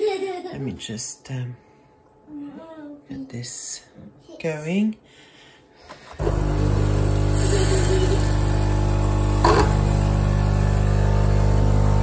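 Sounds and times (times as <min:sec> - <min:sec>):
coffee machine pump humming: 0:06.2 - 0:12.0.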